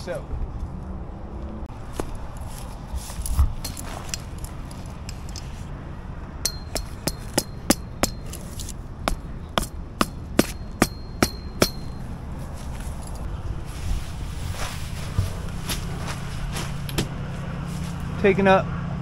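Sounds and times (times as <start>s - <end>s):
mallet striking metal tent stake: 3.6s - 4.4s, 6.4s - 12.1s
high ring from metal stake: 3.6s - 4.5s, 6.4s - 12.2s.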